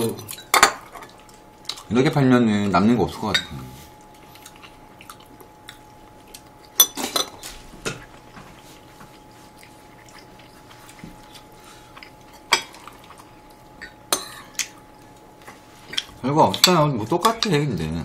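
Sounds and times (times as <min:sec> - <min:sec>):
cutlery clinking on bowls: 0:00.0 - 0:01.3, 0:03.2 - 0:03.6, 0:06.6 - 0:08.1, 0:12.2 - 0:14.8.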